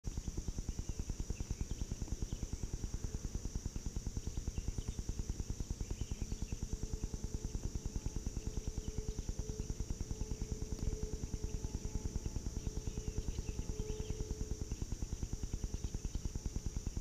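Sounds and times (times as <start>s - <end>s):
faint chirps: 0.1s - 17.0s
high drone of insects: 0.1s - 17.0s
rapid low pulsing: 0.3s - 17.0s.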